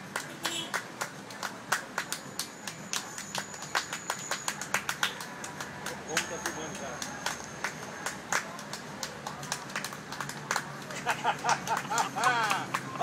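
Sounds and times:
hands clapping a samba beat: 0.0 - 13.0.

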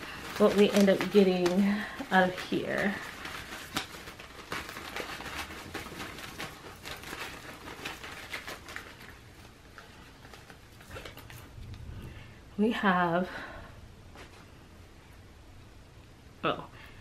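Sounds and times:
fabric and card rustling: 0.0 - 13.0.

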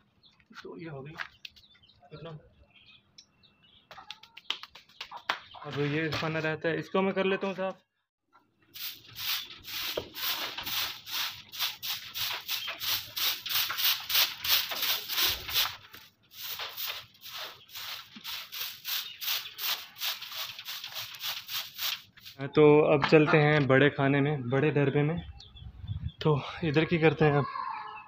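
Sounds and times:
broom sweeping sandy floor: 8.7 - 22.5.

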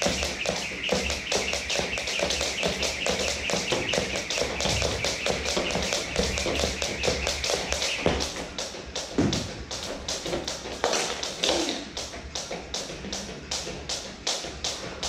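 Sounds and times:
jump ropes slapping the floor: 0.0 - 15.0.

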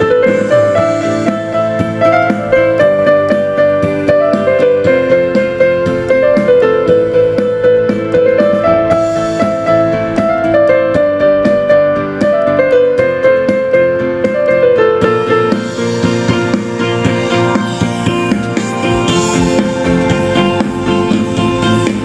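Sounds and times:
keyboard melody over chords: 0.0 - 22.0.

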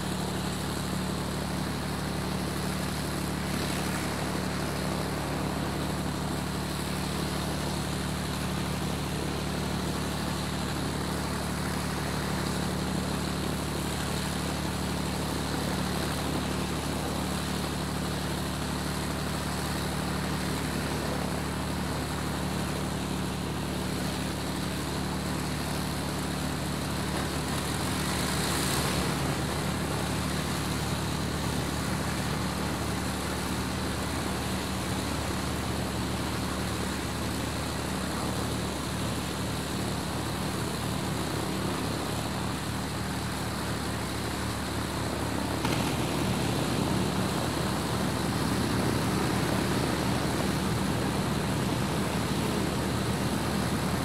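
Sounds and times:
aircraft engines droning: 23.5 - 54.0.

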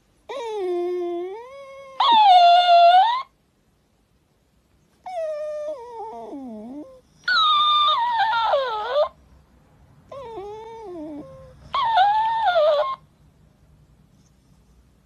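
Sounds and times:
puppy whining: 0.2 - 3.4, 5.0 - 9.2, 10.1 - 13.1.

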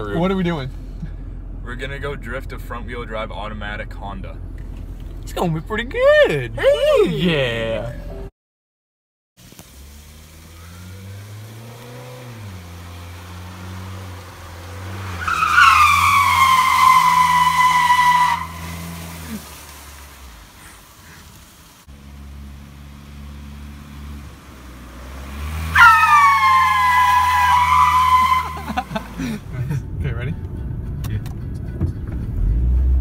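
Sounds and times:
engine droning: 9.4 - 33.0
tyres squealing: 13.0 - 19.6, 25.0 - 29.4.

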